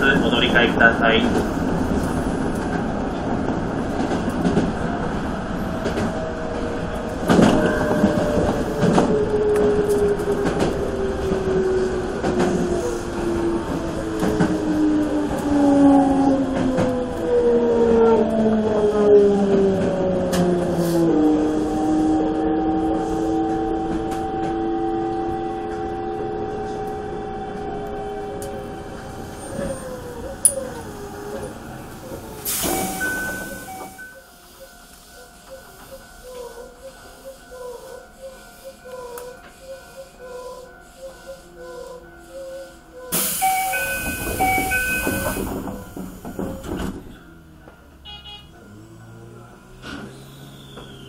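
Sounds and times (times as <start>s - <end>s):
high beep: 32.6s - 34.3s, 43.4s - 45.4s
wheels clicking over rail joints: 43.1s - 47.9s.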